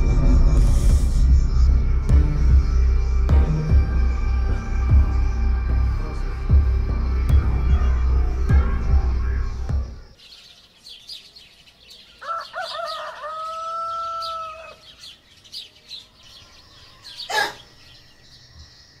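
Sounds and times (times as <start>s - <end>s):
small birds chirping: 1.4s - 19.0s
rooster crowing: 12.2s - 15.0s.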